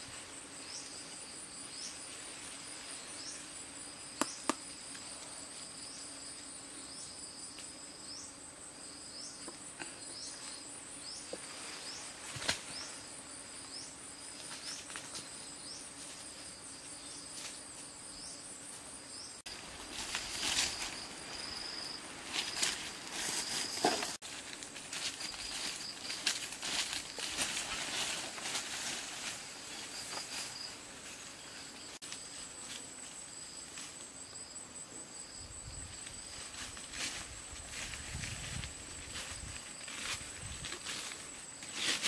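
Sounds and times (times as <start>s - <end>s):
insects trilling: 0.0s - 42.0s
rustling: 19.5s - 31.6s.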